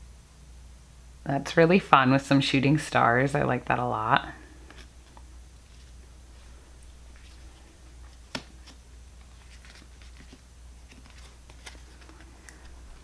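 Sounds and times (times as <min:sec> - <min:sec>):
low steady hum: 0:00.0 - 0:13.0
cards tapping and sliding on cloth: 0:07.1 - 0:13.0.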